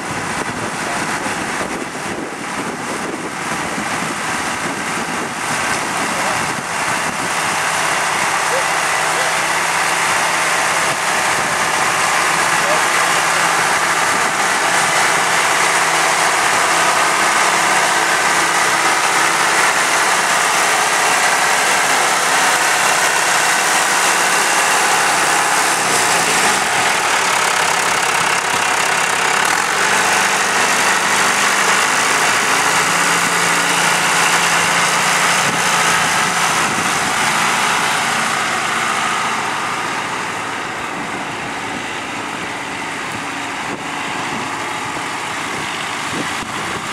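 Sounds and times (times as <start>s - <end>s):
tractor diesel engine running: 0.0s - 46.9s.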